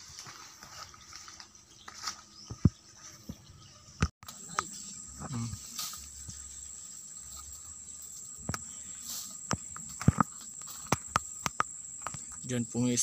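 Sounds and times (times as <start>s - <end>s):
high-pitched insect drone: 3.0s - 13.0s.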